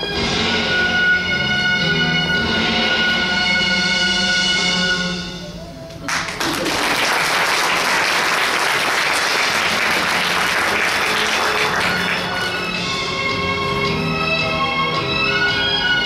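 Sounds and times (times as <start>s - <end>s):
music: 0.0s - 16.0s
audience applauding: 6.0s - 12.9s.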